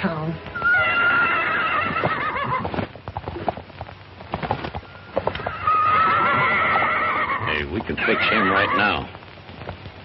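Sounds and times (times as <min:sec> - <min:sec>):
hoofbeats: 0:00.5 - 0:09.9
horse whinnying: 0:00.6 - 0:02.9, 0:04.9 - 0:09.1.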